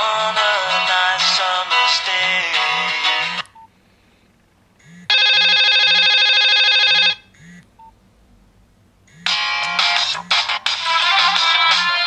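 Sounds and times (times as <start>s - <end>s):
buzzing electronic tone: 4.8s - 6.2s, 6.8s - 7.7s, 9.1s - 10.5s.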